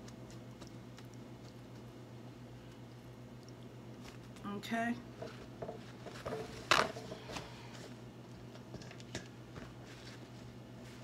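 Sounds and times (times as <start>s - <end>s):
paper towel rustles: 9.6s - 11.0s.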